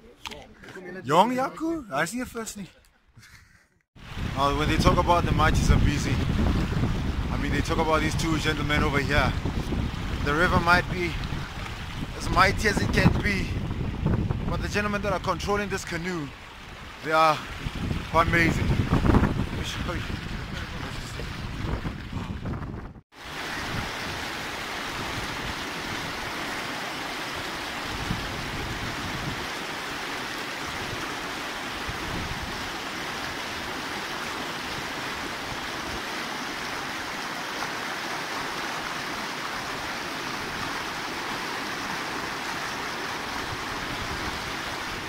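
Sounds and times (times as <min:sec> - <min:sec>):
river rapids rushing: 0:23.2 - 0:45.0.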